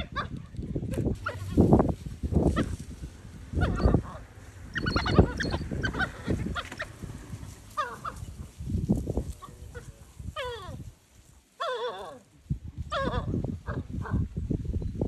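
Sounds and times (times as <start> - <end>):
wild dogs whining calls: 3.5 - 7.1, 7.7 - 8.3.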